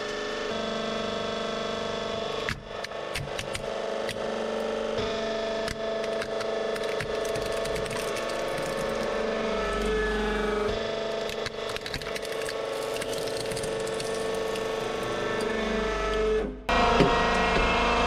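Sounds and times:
hydraulic pump whine: 0:00.0 - 0:06.8, 0:07.9 - 0:18.0
plastic cracking and snapping: 0:06.0 - 0:09.1, 0:11.2 - 0:14.8.

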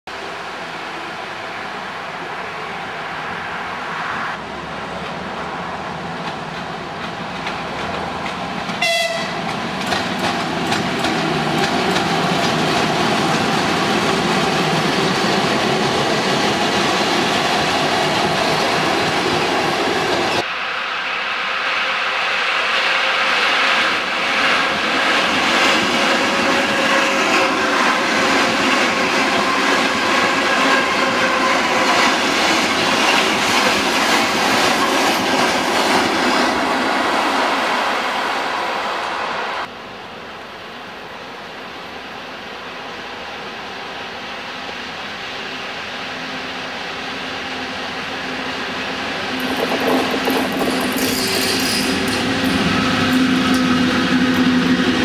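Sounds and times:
electric train passing: 0:00.1 - 0:55.0
train horn blast: 0:08.8 - 0:09.4
wheels clattering over rail joints: 0:49.4 - 0:54.6.

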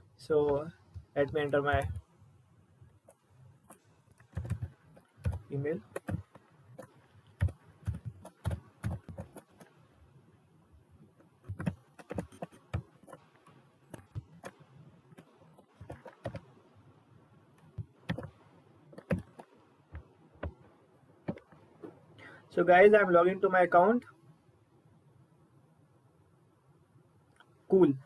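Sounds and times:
keyboard typing: 0:01.2 - 0:02.1, 0:03.1 - 0:09.8, 0:11.4 - 0:16.5, 0:17.7 - 0:20.6.

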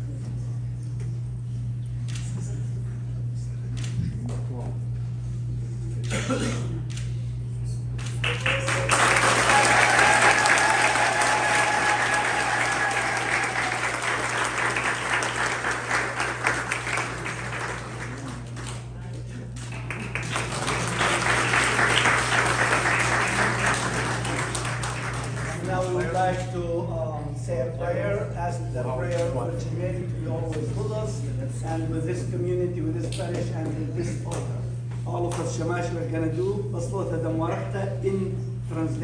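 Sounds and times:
low electrical hum: 0:00.0 - 0:39.0
congregation applauding: 0:08.0 - 0:19.0, 0:19.6 - 0:26.2.

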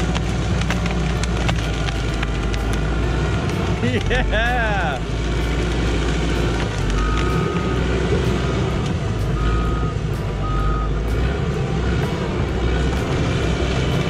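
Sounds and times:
bulldozer diesel engine under load: 0:00.0 - 0:14.0
backup alarm beeping: 0:09.4 - 0:11.0.

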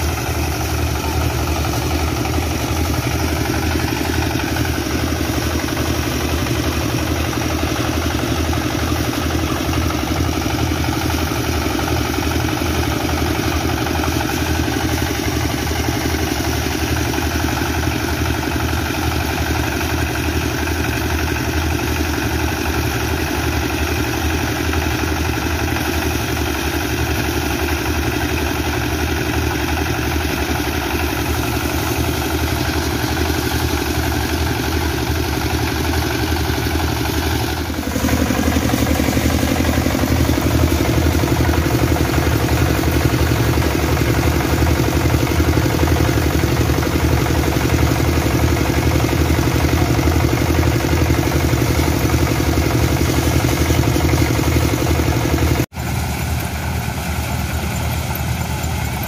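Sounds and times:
small diesel engine pulsing: 0:00.0 - 0:59.0
threshing machine: 0:00.0 - 0:59.0.

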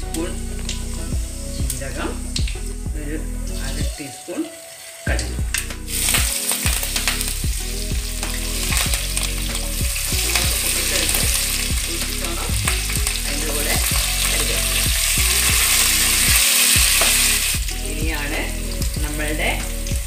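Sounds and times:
low hum: 0:00.0 - 0:03.9, 0:05.1 - 0:20.0
chillies sizzling in hot oil: 0:03.5 - 0:05.2, 0:05.9 - 0:20.0.

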